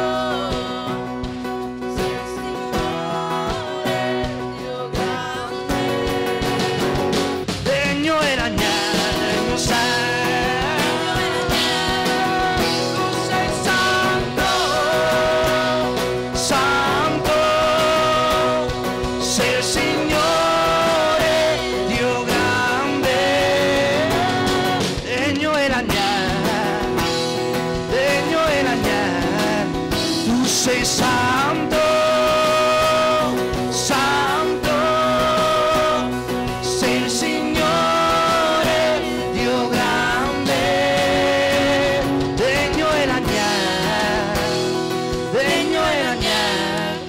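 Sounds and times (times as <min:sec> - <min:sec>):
acoustic and electric guitar: 0:00.0 - 0:47.0
man singing: 0:00.0 - 0:47.0.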